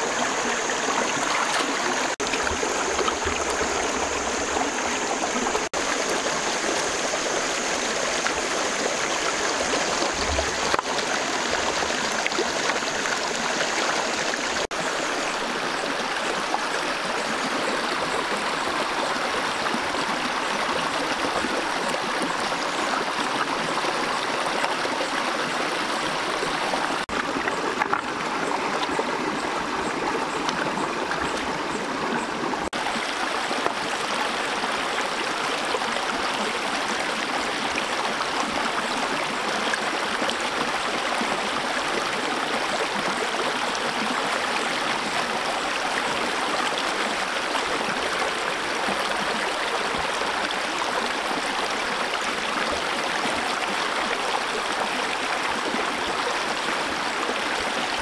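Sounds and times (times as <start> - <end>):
stream flowing over stones: 0.0 - 58.0.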